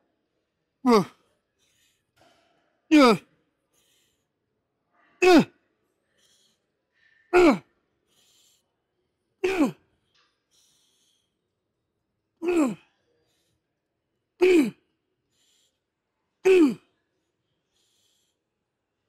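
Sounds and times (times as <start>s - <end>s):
faint quick breaths: 0.2s - 19.0s
man grunting with effort: 0.8s - 1.2s, 2.9s - 3.2s, 5.2s - 5.5s, 7.4s - 7.7s, 9.4s - 9.8s, 12.4s - 12.8s, 14.4s - 14.8s, 16.4s - 16.8s.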